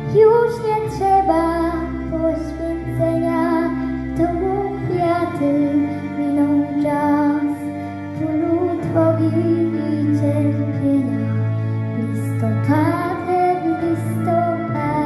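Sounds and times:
girl singing into microphone: 0.0s - 11.2s, 12.2s - 15.0s
instrumental accompaniment: 0.0s - 15.0s.

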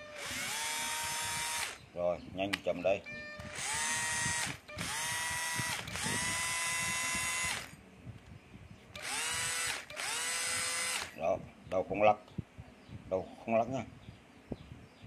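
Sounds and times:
cordless drill motor whine: 0.0s - 1.8s, 3.1s - 7.8s, 9.0s - 11.2s.

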